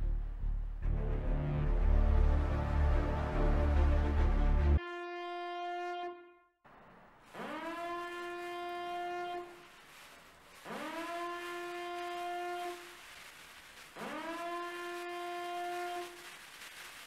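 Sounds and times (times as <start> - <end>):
siren-like horn blasts: 4.8 - 6.6, 7.3 - 9.7, 10.6 - 12.9, 14.0 - 16.2.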